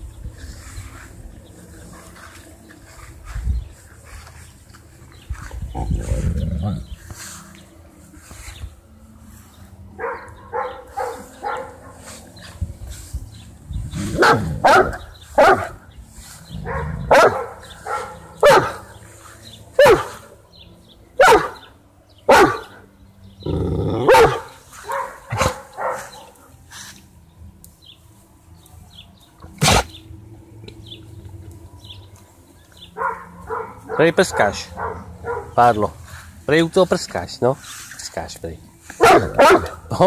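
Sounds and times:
dog barking loudly: 0:10.0 - 0:12.1, 0:14.1 - 0:15.8, 0:16.6 - 0:19.0, 0:19.8 - 0:20.2, 0:21.2 - 0:21.7, 0:22.3 - 0:22.8, 0:24.0 - 0:26.4, 0:33.0 - 0:35.7, 0:39.0 - 0:39.9
dog yipping: 0:16.7 - 0:18.8, 0:19.8 - 0:20.2, 0:21.2 - 0:21.6, 0:22.3 - 0:22.7, 0:24.1 - 0:26.3, 0:39.0 - 0:39.8.

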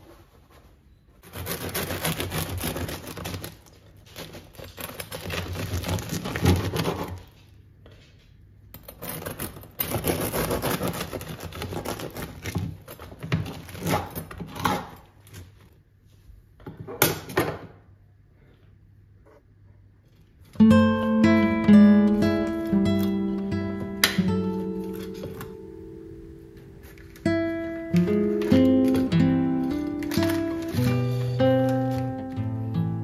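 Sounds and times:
bread knife sawing crust: 0:01.2 - 0:03.6, 0:09.0 - 0:12.6.

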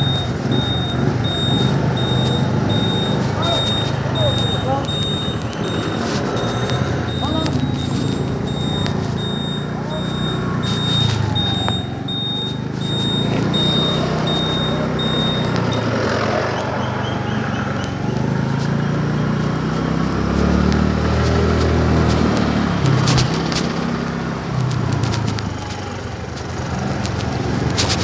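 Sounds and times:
high electronic beeps: 0:00.0 - 0:17.6
road and wind noise: 0:00.0 - 0:28.0
scooter engine running: 0:00.0 - 0:28.0.

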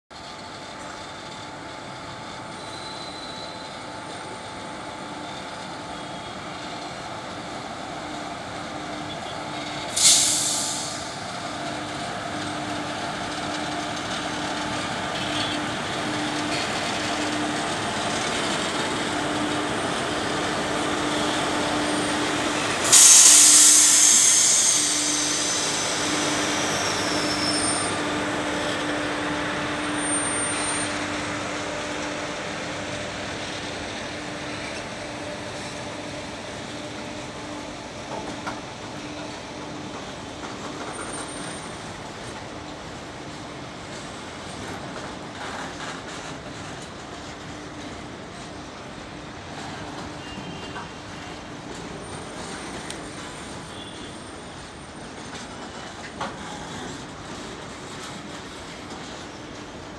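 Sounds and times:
freight train wheels rumbling: 0:00.1 - 0:59.9
air hissing: 0:10.0 - 0:11.2, 0:22.8 - 0:27.6.

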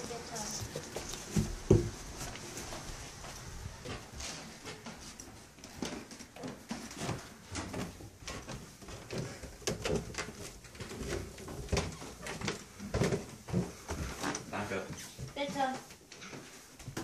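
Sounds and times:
knocks and rustling: 0:00.0 - 0:02.9, 0:05.7 - 0:14.5
footsteps: 0:00.0 - 0:17.0.

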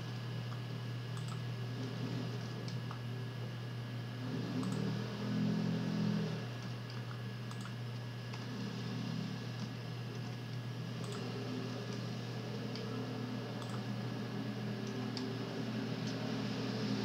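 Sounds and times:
low electrical hum: 0:00.0 - 0:17.0
keyboard keystrokes and clicks: 0:01.2 - 0:01.4, 0:06.9 - 0:08.4, 0:13.6 - 0:13.9.

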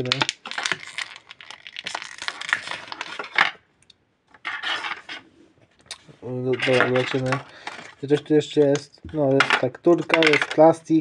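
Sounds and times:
plastic packaging crinkling: 0:00.0 - 0:03.6.

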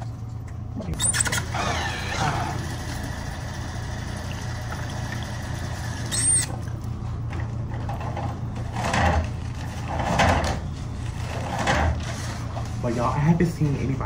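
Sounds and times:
steady low hum: 0:00.0 - 0:14.0
short high squeak: 0:01.0 - 0:02.2, 0:06.1 - 0:06.5.

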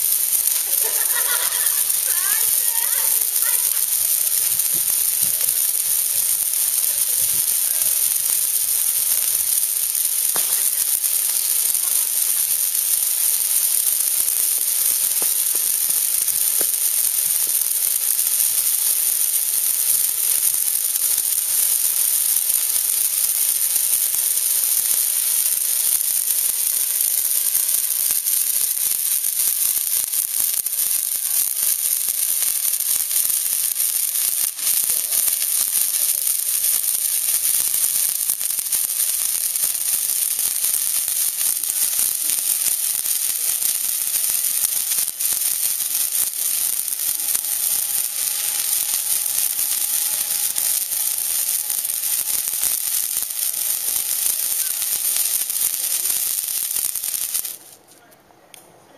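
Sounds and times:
fireworks hissing sizzle: 0:00.0 - 0:58.8.

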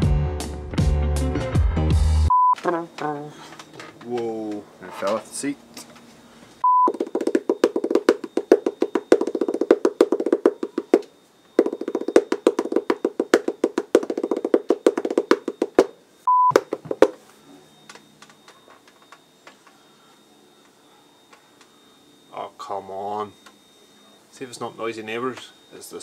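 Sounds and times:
test-tone beep: 0:02.3 - 0:03.5, 0:06.6 - 0:26.0.

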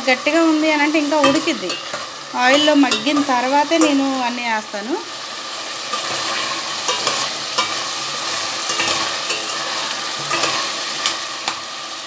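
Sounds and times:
vegetables sizzling in oil: 0:00.0 - 0:12.0
wooden spoon scraping a pot: 0:05.9 - 0:11.3.

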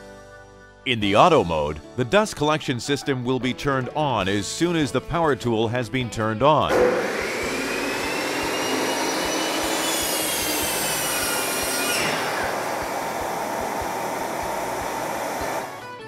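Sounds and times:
electric miter saw whine: 0:06.7 - 0:16.0
shop vacuum running: 0:06.7 - 0:16.0.

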